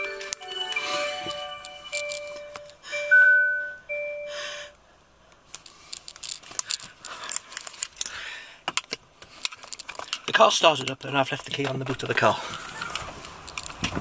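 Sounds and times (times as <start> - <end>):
dashboard chimes: 0.0 - 4.5
clicking and rustling of handling: 1.6 - 2.8, 5.3 - 14.0.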